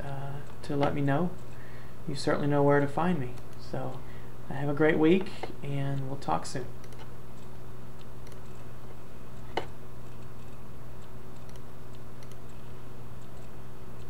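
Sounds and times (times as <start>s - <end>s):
low electrical hum: 0.0s - 14.0s
computer mouse clicks: 6.8s - 8.7s, 9.4s - 12.6s.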